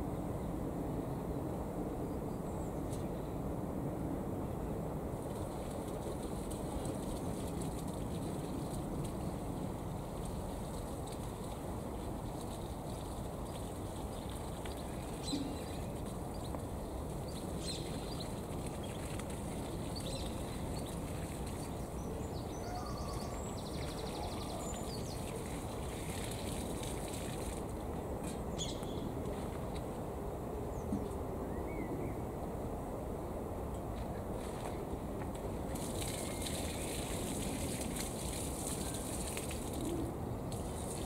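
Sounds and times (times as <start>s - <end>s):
low outdoor background noise: 0.0s - 41.0s
small birds chirping: 19.8s - 25.6s.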